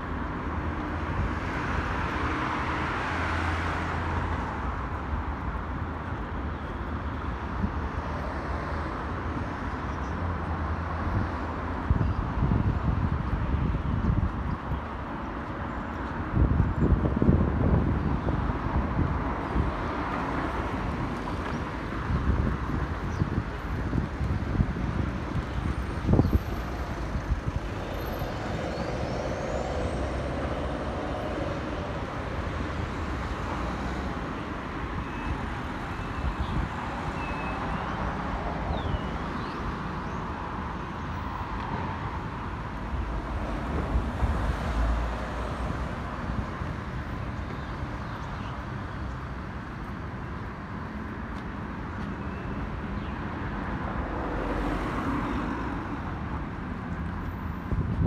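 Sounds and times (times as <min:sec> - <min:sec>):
passing cars and buses: 0:00.0 - 0:58.0
wind thumps on microphone: 0:57.7 - 0:58.0.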